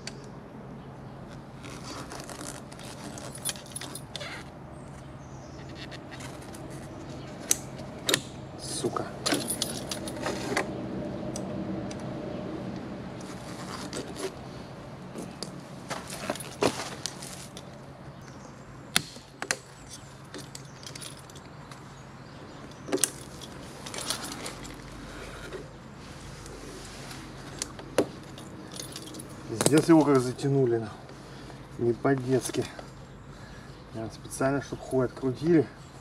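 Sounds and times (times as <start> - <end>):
metal tools clinking: 2.9 - 4.4, 9.2 - 10.6, 19.7 - 21.8, 22.7 - 25.6, 27.5 - 30.5.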